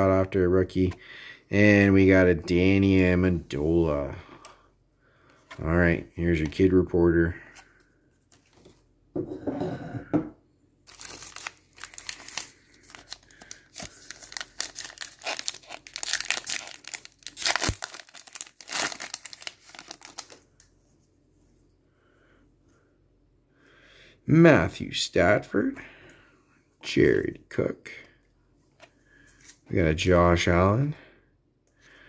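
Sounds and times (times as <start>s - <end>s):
foil wrapper crinkling: 10.9s - 20.4s.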